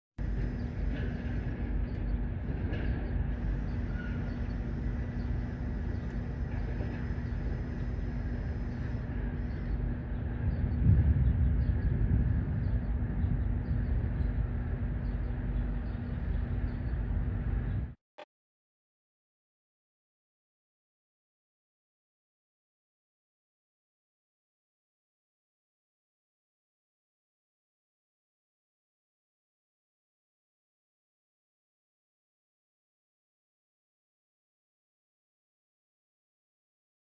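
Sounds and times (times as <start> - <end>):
loud low rumble: 0.2 - 18.0
refrigeration units humming: 0.2 - 18.0.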